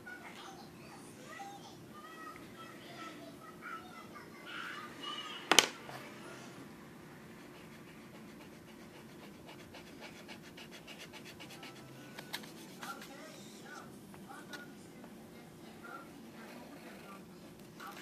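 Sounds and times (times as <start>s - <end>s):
scratchy drawing strokes on paper: 7.5s - 13.8s.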